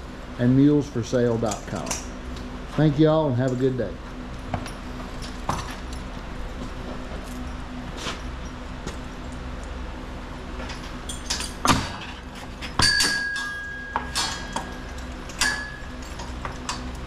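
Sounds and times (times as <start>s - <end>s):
steady low hum: 0.0s - 17.0s
metal harness hardware clanking: 10.6s - 17.0s.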